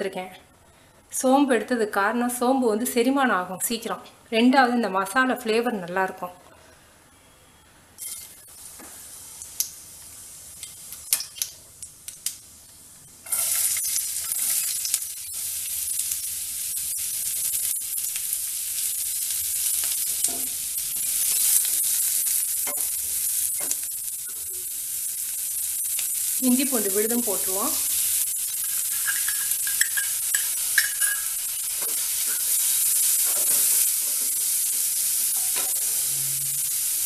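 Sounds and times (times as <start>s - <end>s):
onions sizzling: 8.0s - 37.0s
spices popping in hot oil: 8.0s - 37.0s.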